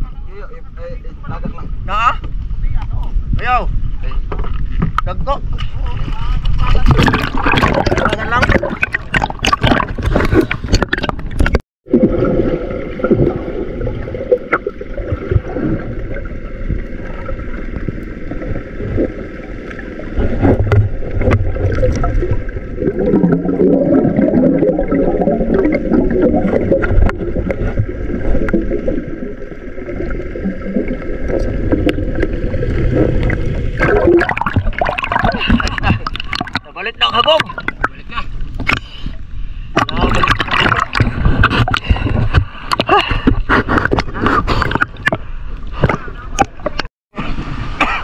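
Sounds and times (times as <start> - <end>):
underwater rumble of moving water: 0.0 - 48.0
bubbling from exhaled breath: 6.9 - 36.6.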